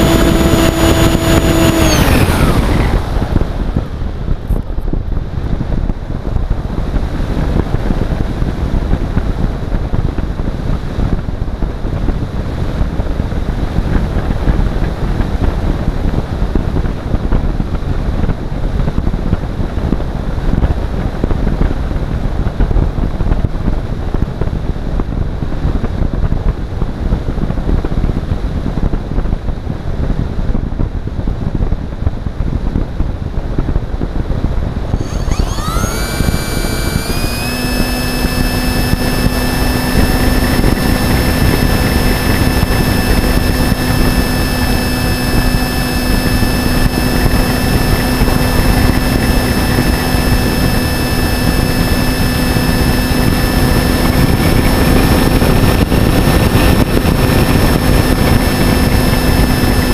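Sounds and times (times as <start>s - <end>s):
model aircraft motor whine: 0.0s - 4.0s, 34.9s - 59.9s
wind rushing over microphone: 0.0s - 59.9s.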